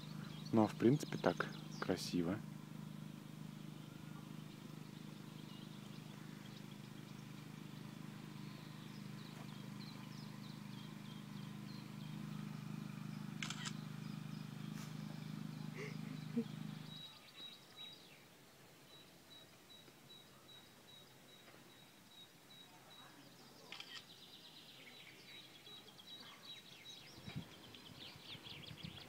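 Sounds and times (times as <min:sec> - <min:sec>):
generator engine humming: 0:00.0 - 0:18.0
songbirds chirping: 0:00.0 - 0:29.0.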